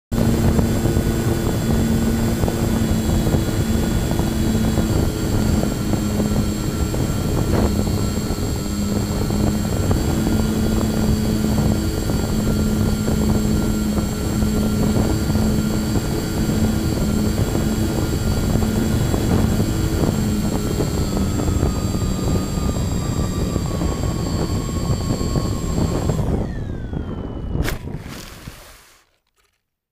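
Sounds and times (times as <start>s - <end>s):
electric motors whining: 0.1s - 29.2s
rushing air: 27.6s - 29.1s.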